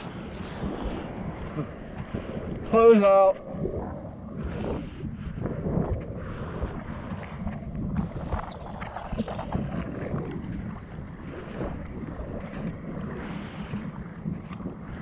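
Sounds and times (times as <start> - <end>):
seawater sloshing and splashing: 0.0 - 15.0
wind noise: 0.0 - 15.0.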